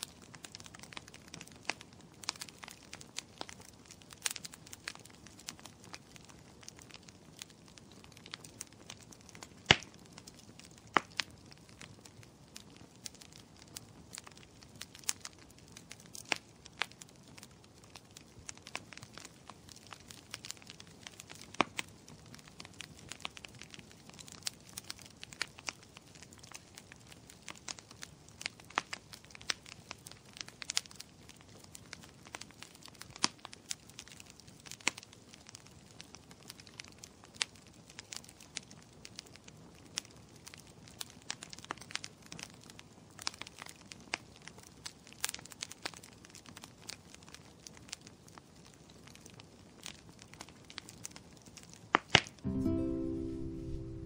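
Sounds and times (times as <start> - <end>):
low steady hiss: 49.4 - 54.0.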